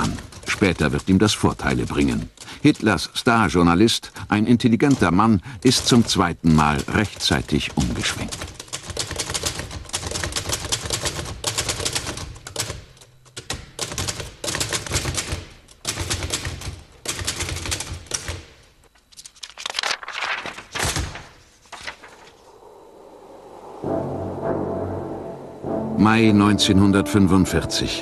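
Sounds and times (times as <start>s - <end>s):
manual typewriter keystrokes: 0.0s - 3.5s, 4.6s - 21.3s.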